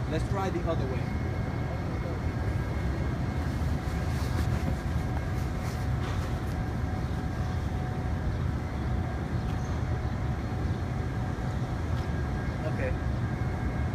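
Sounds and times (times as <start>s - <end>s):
low outdoor rumble: 0.0s - 13.9s.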